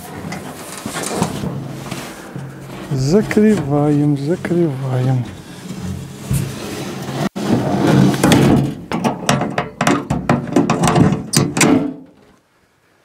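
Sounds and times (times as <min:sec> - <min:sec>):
metal hood panels clicking and rattling: 0:00.0 - 0:03.8, 0:07.8 - 0:12.3
low steady hum: 0:00.0 - 0:06.6.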